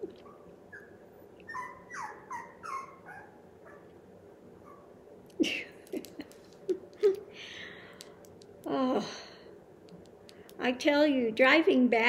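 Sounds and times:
puppy whimpering: 0.0 - 3.9.

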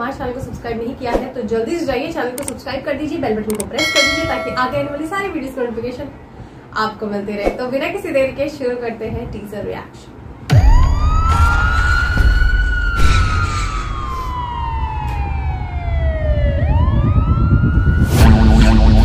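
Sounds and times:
siren wailing: 10.5 - 18.3.

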